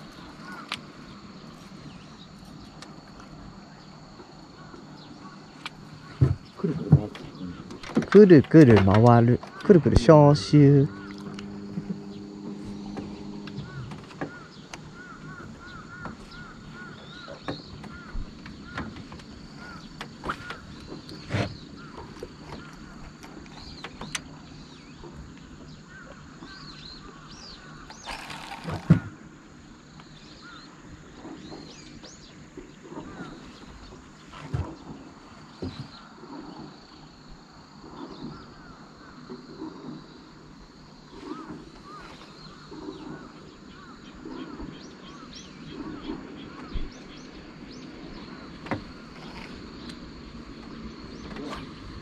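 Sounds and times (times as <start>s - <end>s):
birds chirping: 0.0s - 52.0s.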